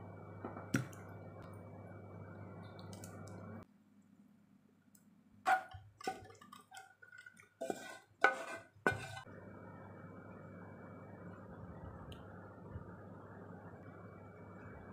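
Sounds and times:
spatula scraping pot: 7.6 - 9.3.

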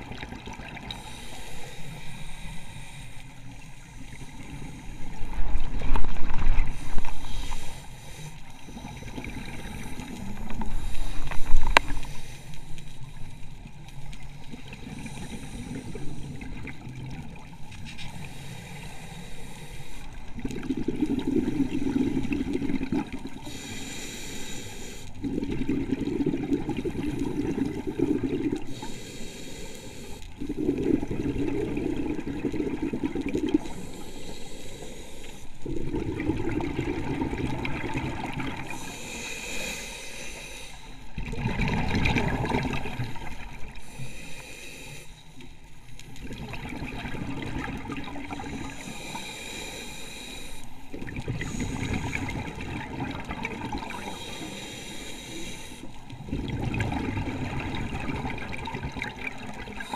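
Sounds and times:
exhaled air bubbling: 0.0 - 12.2, 20.0 - 24.1, 25.1 - 29.2, 30.0 - 34.6, 35.5 - 39.9, 40.7 - 44.2, 46.0 - 59.9
regulator inhale hiss: 0.8 - 5.3, 6.6 - 16.6, 18.0 - 20.4, 23.3 - 25.2, 28.5 - 30.5, 33.5 - 35.7, 38.6 - 41.2, 43.1 - 46.2, 48.3 - 52.6, 53.8 - 56.2, 59.5 - 59.9.

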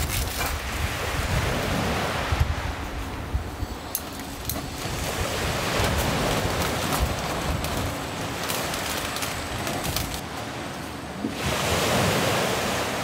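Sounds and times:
wind buffeting microphone: 0.0 - 10.4
waves washing on beach: 0.0 - 13.0.

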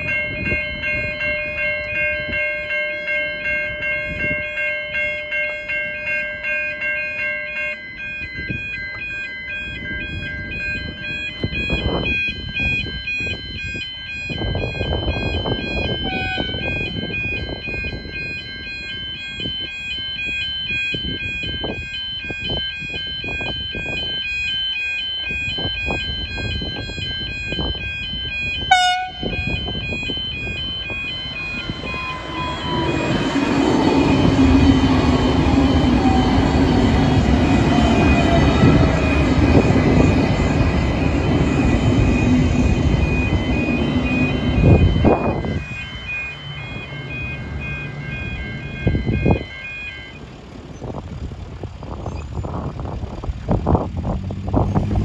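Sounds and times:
level crossing bells ringing: 0.0 - 51.4
train horn blast: 16.0 - 16.9, 28.7 - 29.6.

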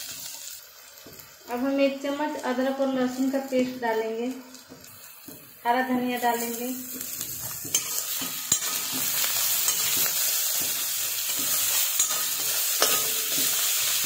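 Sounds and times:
food sizzling in hot oil: 0.0 - 14.0
metal clinking on metal: 7.6 - 13.5.

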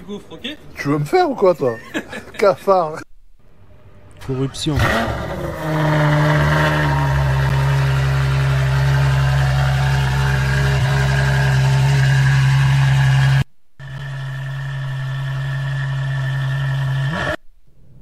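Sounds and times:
car engine idling: 5.0 - 17.2.

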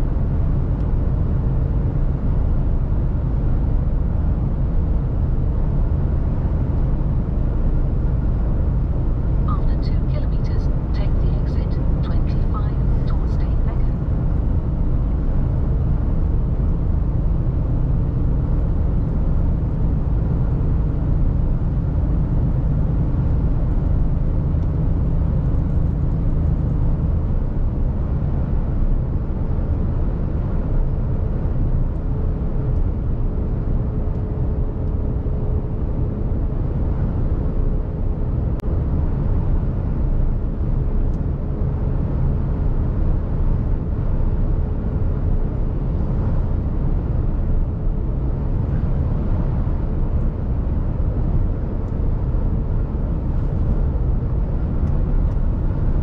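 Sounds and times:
faint constant whine: 0.0 - 56.0
truck engine and tyre drone: 0.0 - 56.0.

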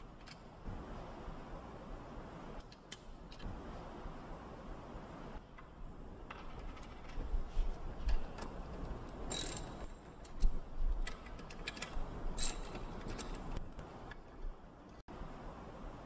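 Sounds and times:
socket ratchet clicking: 9.1 - 13.6
metal tool clinking on nuts: 9.2 - 10.5, 12.4 - 13.5.

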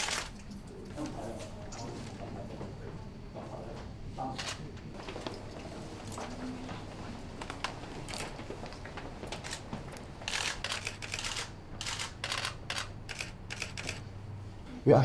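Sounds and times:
camera shutters clicking: 10.2 - 14.0.

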